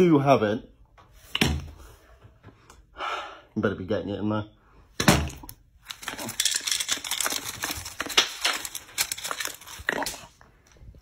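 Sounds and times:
paper rustling and crinkling: 5.8 - 10.4.

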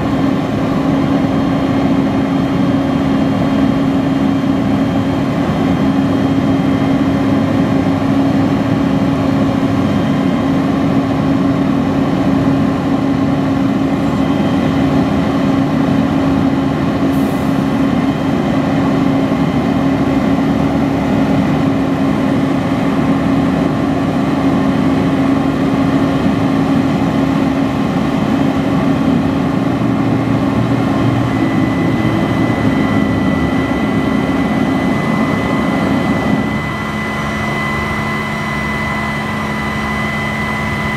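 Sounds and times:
diesel truck engine running: 0.0 - 40.9
thin high whine: 30.8 - 40.9.

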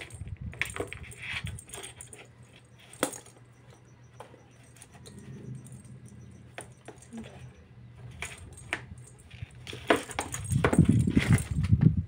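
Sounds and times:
toy ball rattling in cardboard box: 0.0 - 5.1, 8.0 - 11.8.

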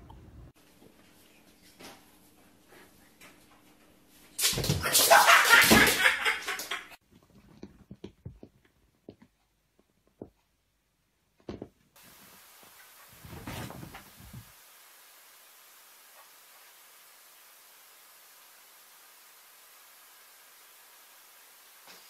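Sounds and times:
faint taps and knocks: 7.1 - 10.6.

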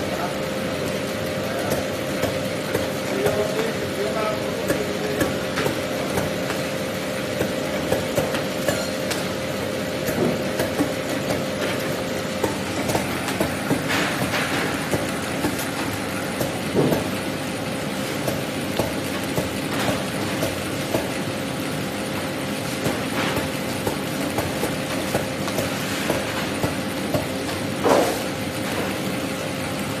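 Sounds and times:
conveyor belt running: 0.0 - 30.0
machine hum: 0.0 - 30.0.

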